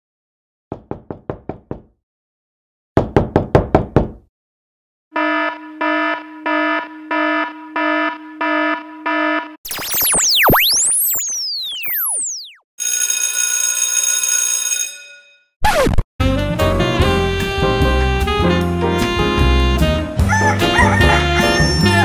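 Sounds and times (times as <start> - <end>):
runs of knocks: 0.7 - 1.9
pulsing buzzing beep: 5.2 - 12.6
tones sweeping up and down: 6.7 - 12.6.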